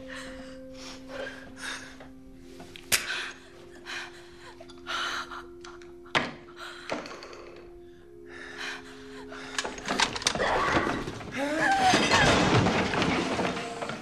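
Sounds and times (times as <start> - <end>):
low music drone: 0.0 - 14.0.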